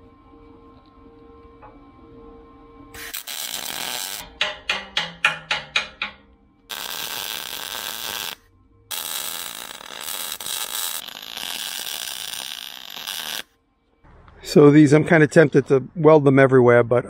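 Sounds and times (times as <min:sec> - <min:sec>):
welder arc crackling and hissing: 0:03.0 - 0:04.3, 0:06.7 - 0:13.5.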